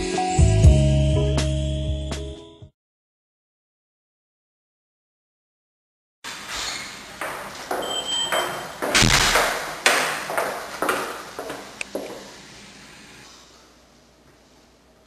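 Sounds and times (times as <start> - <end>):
footsteps on a hard floor: 7.2 - 12.3.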